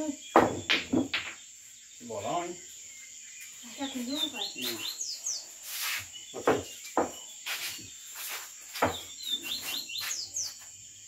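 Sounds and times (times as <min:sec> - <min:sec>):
insects trilling: 0:00.0 - 0:11.0
sharp knocks: 0:00.3 - 0:01.4.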